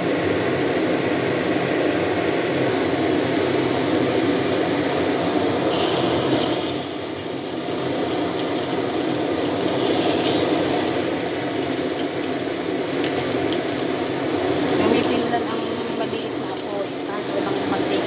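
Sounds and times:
fish frying with crackling sizzle: 0.0s - 18.0s
hot oil hissing in a wok: 0.0s - 18.0s
steady low rumble: 14.1s - 18.0s.

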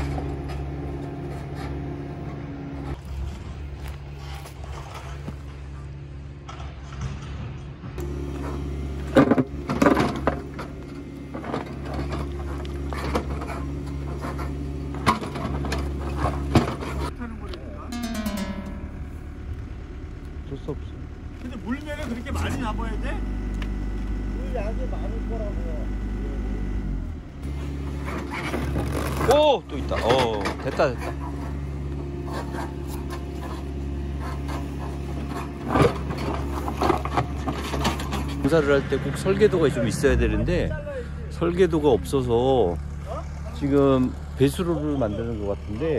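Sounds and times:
excavator engine running: 0.0s - 45.9s
bucket teeth scraping rocky soil: 28.0s - 38.8s.

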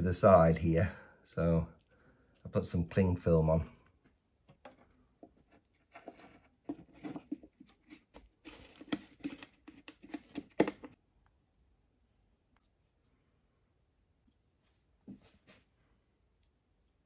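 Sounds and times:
balsa wood knocks and scrapes: 4.5s - 11.0s.

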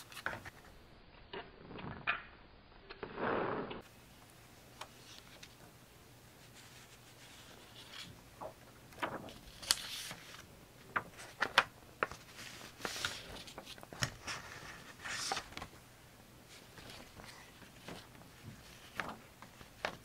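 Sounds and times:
paper rustling: 6.4s - 15.8s, 16.5s - 20.0s.

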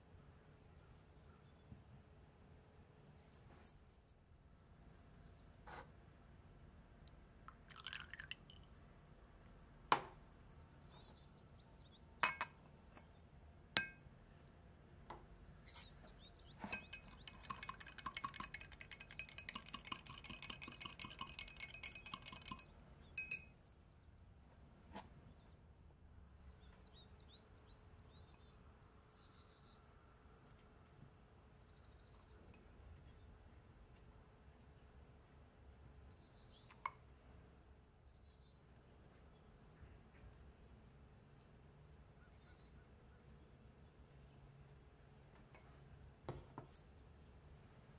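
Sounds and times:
whisk beating in glass jug: 7.7s - 8.4s, 16.7s - 23.5s
utensils clinking against glass jug: 7.7s - 8.6s, 12.2s - 12.6s, 16.6s - 23.5s.

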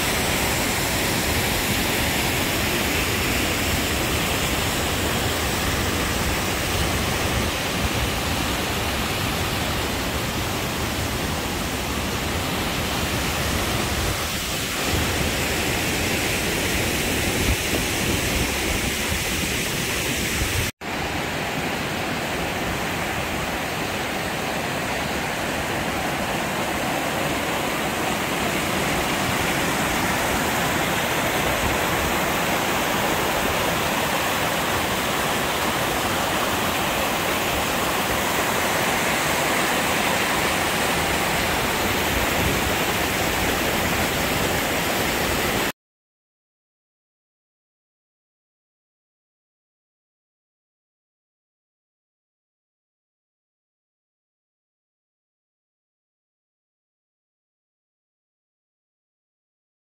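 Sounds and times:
waterfall rushing over rocks: 0.0s - 45.7s.

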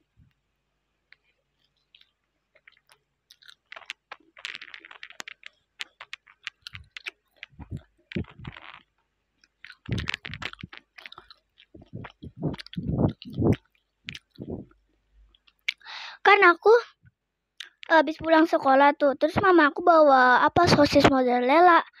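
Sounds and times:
person chewing with wet smacks: 1.6s - 15.8s.

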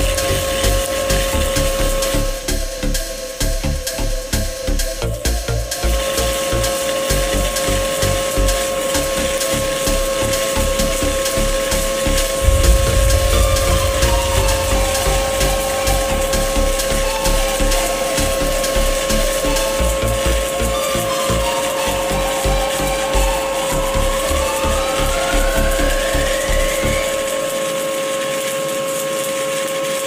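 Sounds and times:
steady high whine: 11.3s - 21.0s.

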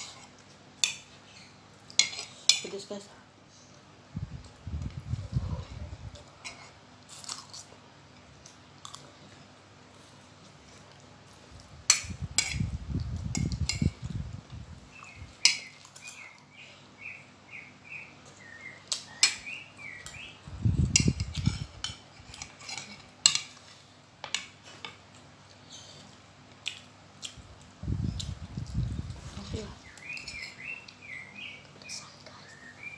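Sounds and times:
bird chirping: 14.9s - 20.4s, 29.5s - 32.9s.

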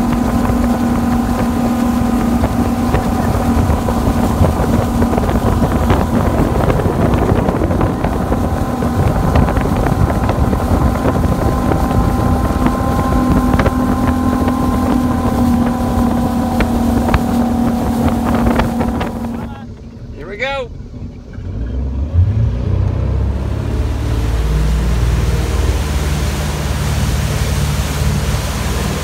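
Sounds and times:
wind buffeting microphone: 0.0s - 20.0s
outboard engines droning: 0.0s - 29.0s
water rushing: 0.0s - 29.0s.

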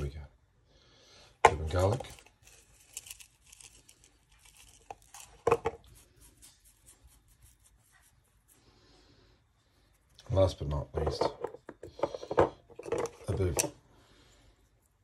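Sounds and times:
hand rubbing meat: 3.7s - 9.0s.

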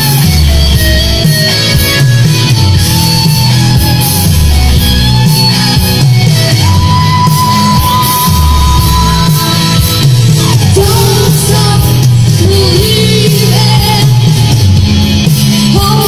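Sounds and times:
rock music: 0.0s - 16.0s
boy singing into a microphone: 7.3s - 14.8s, 15.6s - 16.0s.

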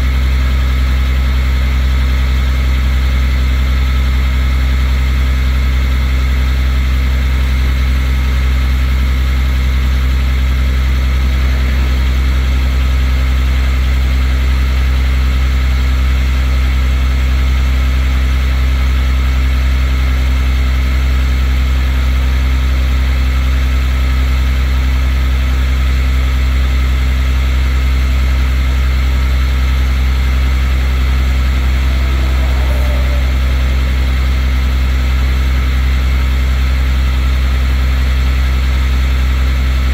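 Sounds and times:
truck engine idling: 8.6s - 15.9s, 27.6s - 39.4s.

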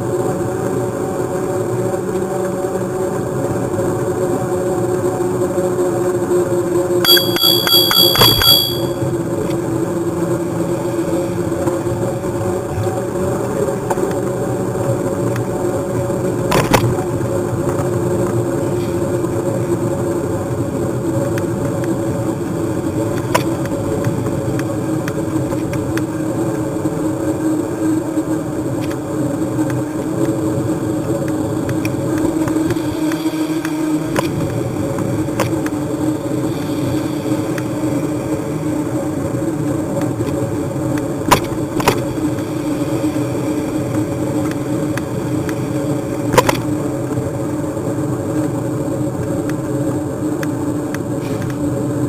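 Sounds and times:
sharp knock: 7.1s - 9.0s.

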